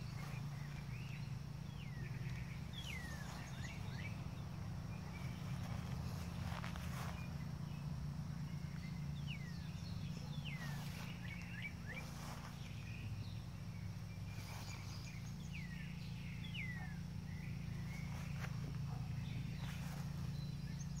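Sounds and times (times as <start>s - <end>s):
bird chirping: 0.0s - 21.0s
low hum: 0.0s - 21.0s
soft scuffs and knocks: 5.1s - 7.4s, 17.9s - 20.4s.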